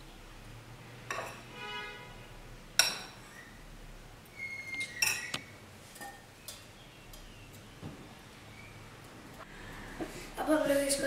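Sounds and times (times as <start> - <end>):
utensils clinking on glass bowls: 4.8 - 5.4.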